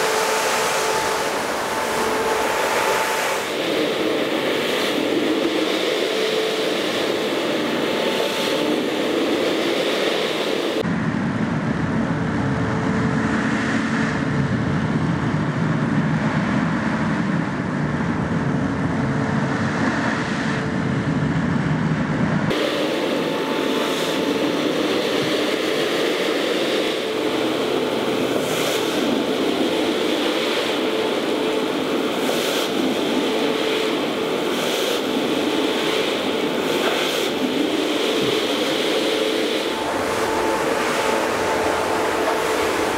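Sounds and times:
carpet machine motor humming: 0.0s - 10.8s, 22.5s - 42.9s.

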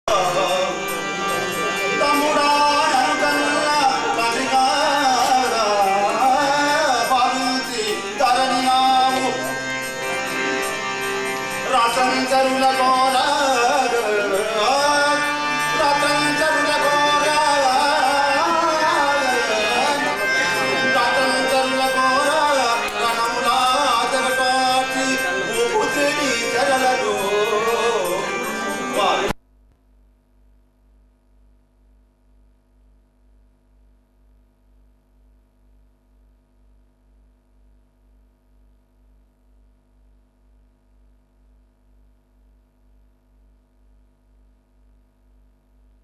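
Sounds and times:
harmonium: 0.1s - 29.4s
man singing: 0.1s - 29.4s
tabla rhythm: 0.1s - 29.4s.

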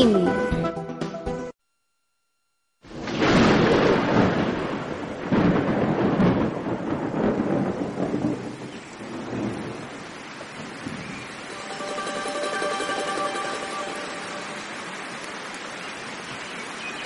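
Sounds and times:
thunder rolling: 2.9s - 15.1s
heavy rain: 2.9s - 17.0s.

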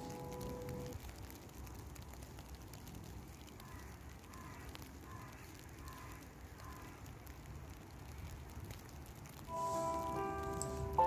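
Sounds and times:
crow cawing: 3.6s - 7.0s.

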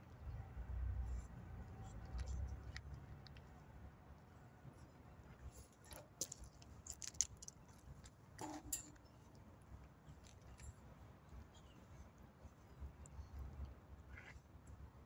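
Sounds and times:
faint clicks and rustles: 1.0s - 14.9s.

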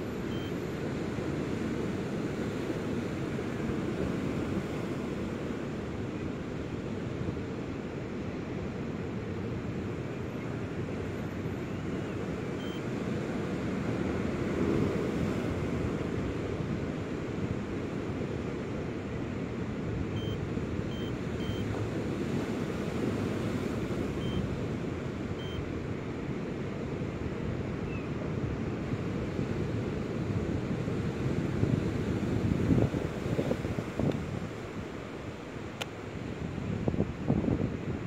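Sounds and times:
wind blowing on microphone: 27.4s - 35.1s, 36.2s - 38.0s.

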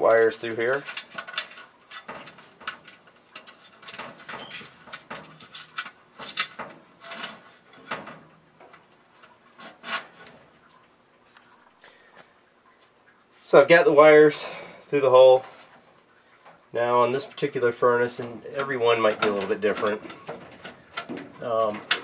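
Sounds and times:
wire clicking against metal: 0.0s - 10.8s, 18.1s - 22.0s
wires rubbing and scraping: 0.0s - 11.7s, 16.7s - 22.0s.

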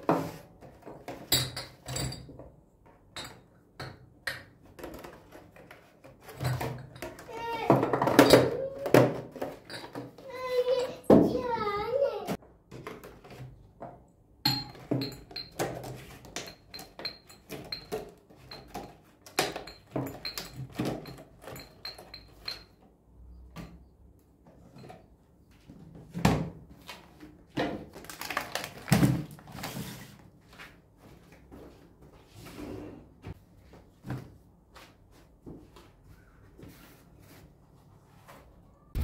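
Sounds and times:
glasses clinking on a table: 14.5s - 15.6s.

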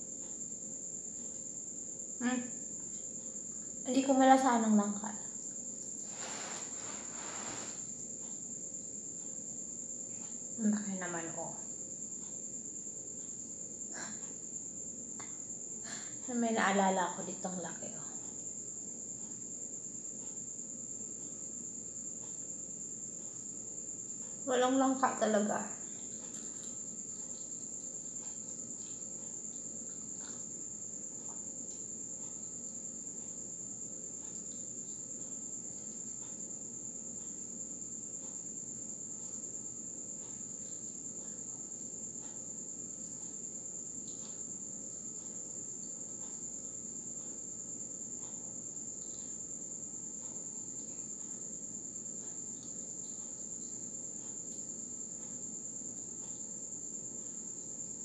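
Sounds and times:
cricket trilling: 0.0s - 58.0s
crunchy chewing clicks: 25.8s - 33.4s.

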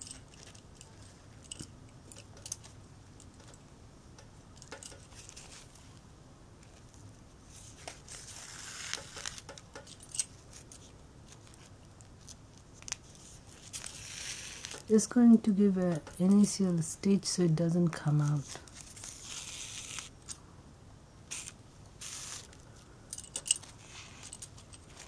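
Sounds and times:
metal bangles clinking: 0.0s - 3.6s, 4.5s - 5.7s, 9.1s - 11.6s, 21.3s - 25.0s
cloth rustling: 17.9s - 20.2s.

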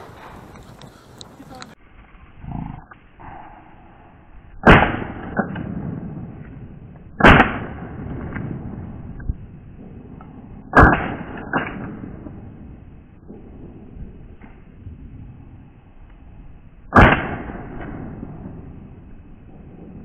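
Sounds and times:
loud shotgun shots: 4.6s - 6.4s, 7.1s - 9.0s, 10.6s - 12.5s, 16.9s - 18.9s.

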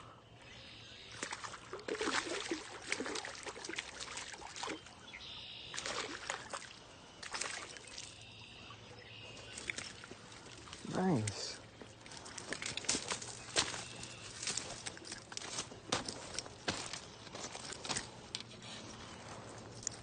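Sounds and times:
fish thrashing and splashing in water: 1.1s - 5.0s, 5.6s - 8.3s, 9.5s - 10.8s, 12.0s - 18.1s.

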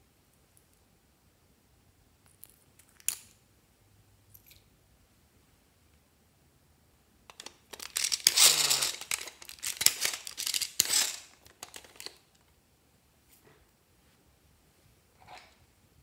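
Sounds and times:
plastic scraping and crackling: 7.3s - 12.4s.

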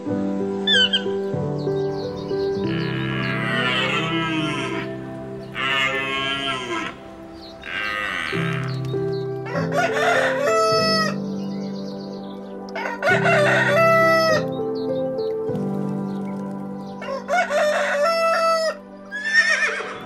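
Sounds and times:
background music: 0.0s - 20.0s
rooster crowing: 2.6s - 8.8s, 9.4s - 11.2s, 12.8s - 14.5s, 17.0s - 20.0s.

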